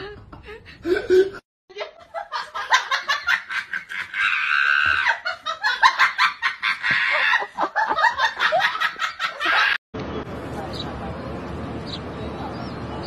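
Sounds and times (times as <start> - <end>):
hearty human laughter: 0.0 - 9.8.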